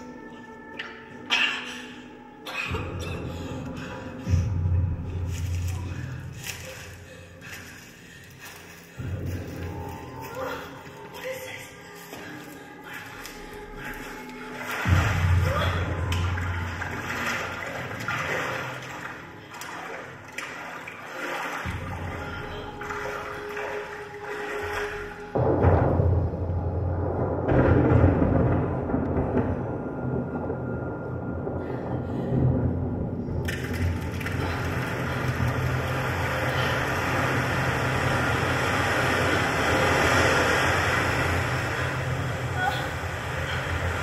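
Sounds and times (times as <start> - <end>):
low hum: 0.0 - 11.2, 11.8 - 44.0
low rumbling drone with hiss: 30.1 - 44.0
rushing noise in waves: 33.8 - 44.0.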